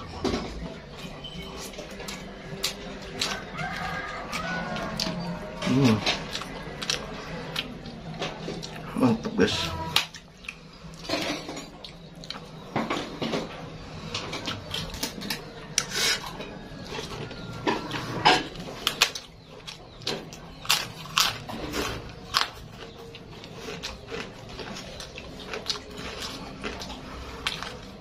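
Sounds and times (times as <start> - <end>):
chewing: 1.0 - 28.0
fried cracker crunching: 1.6 - 8.8, 18.8 - 28.0.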